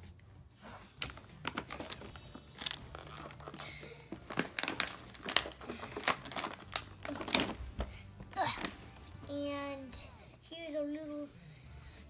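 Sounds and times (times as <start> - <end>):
plastic packaging crinkling: 1.0 - 8.8.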